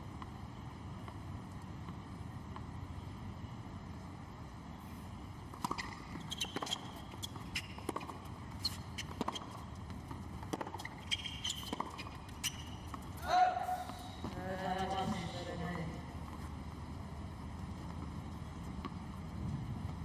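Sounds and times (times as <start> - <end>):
tennis ball bouncing: 5.5 - 13.2, 13.8 - 15.3
sneaker squeaks: 5.6 - 15.3.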